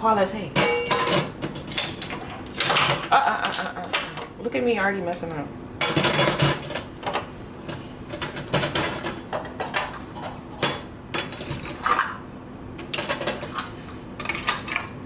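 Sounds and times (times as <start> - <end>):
metal utensils clinking: 8.1 - 12.1.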